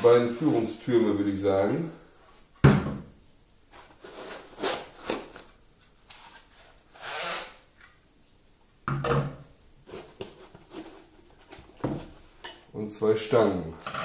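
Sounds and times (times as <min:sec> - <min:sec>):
styrofoam packing rubbing and scraping: 0:00.0 - 0:00.9, 0:03.7 - 0:05.5, 0:06.1 - 0:07.7.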